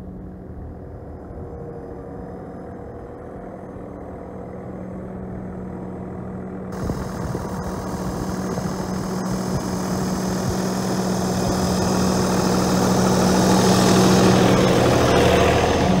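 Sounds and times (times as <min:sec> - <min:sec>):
tractor diesel engine running: 0:06.7 - 0:16.0.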